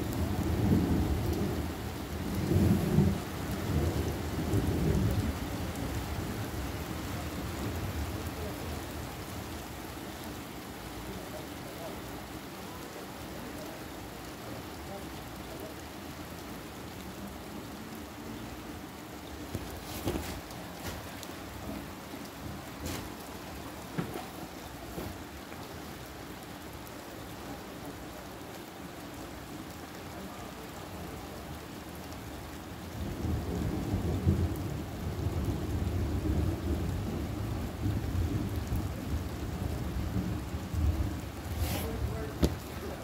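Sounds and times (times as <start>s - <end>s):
low rumble of thunder: 0.0s - 8.8s, 32.9s - 43.0s
steady rain falling: 0.0s - 43.0s.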